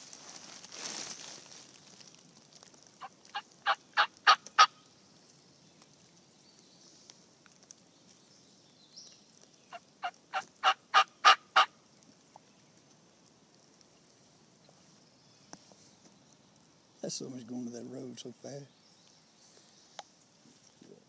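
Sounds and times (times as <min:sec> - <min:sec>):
turkey yelping: 0:03.0 - 0:04.8, 0:10.0 - 0:11.7.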